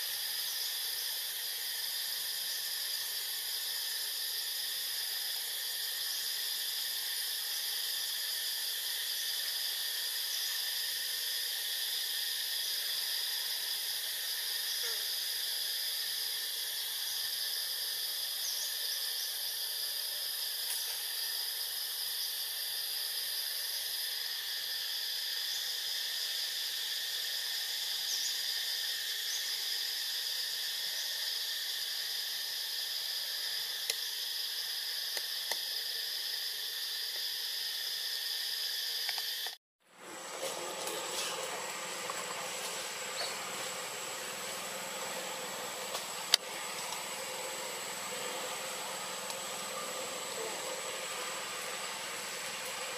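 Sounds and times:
insect chorus drone: 0.0s - 52.9s
wide hiss: 0.0s - 52.9s
thin high whine: 39.4s - 52.9s.

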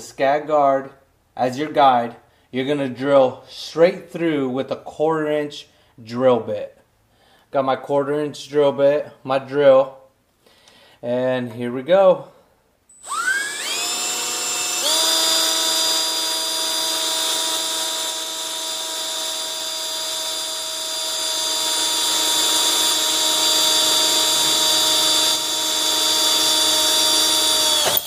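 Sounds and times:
cordless drill whining through metal: 12.9s - 28.0s.

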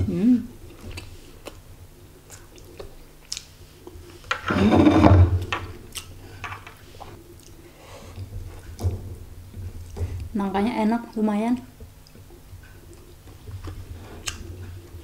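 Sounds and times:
close-up chewing: 0.7s - 4.2s, 5.9s - 8.8s, 11.8s - 15.0s.

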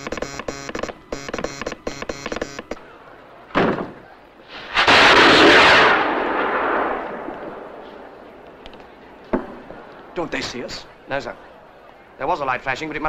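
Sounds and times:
short burst: 4.4s - 8.4s
rocket whoosh: 4.5s - 8.0s.

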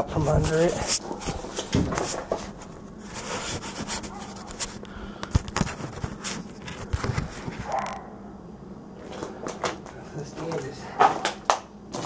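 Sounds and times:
rustling handling noise: 0.0s - 8.1s, 9.0s - 12.0s
steady low hum: 0.0s - 12.0s
knocks and scrapes: 0.1s - 4.8s.

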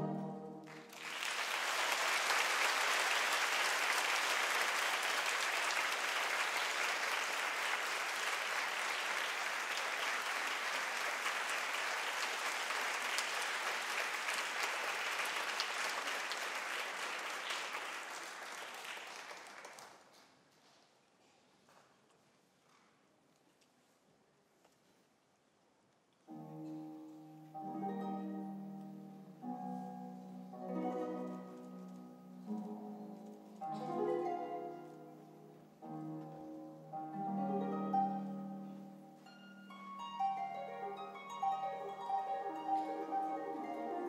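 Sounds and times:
orchestral music: 0.0s - 1.0s, 26.3s - 44.0s
audience applauding: 0.6s - 20.3s.

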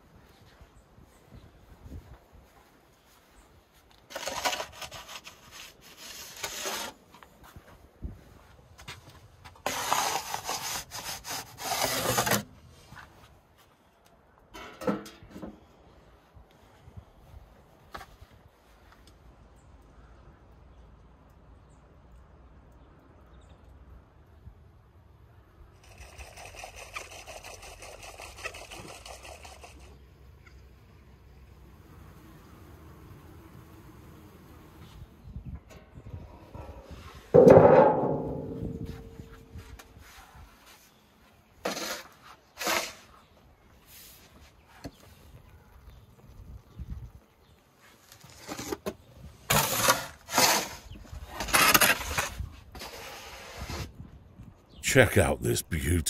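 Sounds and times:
faint outdoor ambience: 0.0s - 56.0s
wooden peel scraping stone oven floor: 4.0s - 7.3s, 9.4s - 13.1s, 40.9s - 43.3s, 47.8s - 53.9s.

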